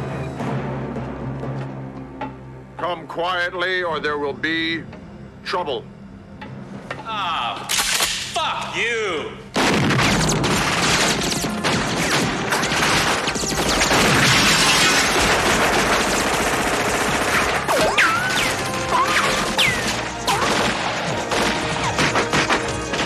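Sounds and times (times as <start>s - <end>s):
automatic gunfire: 9.6s - 23.0s.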